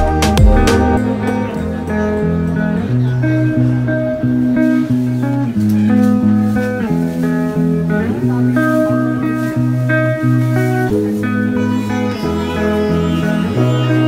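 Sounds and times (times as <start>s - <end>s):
instrumental background music: 0.0s - 14.0s.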